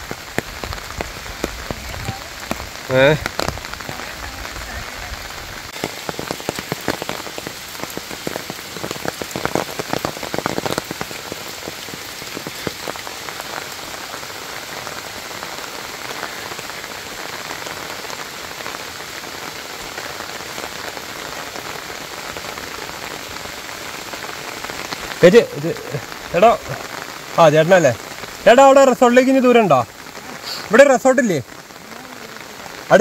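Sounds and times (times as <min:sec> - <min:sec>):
close raindrop taps: 0:00.0 - 0:14.8
steady rain falling: 0:00.0 - 0:33.0.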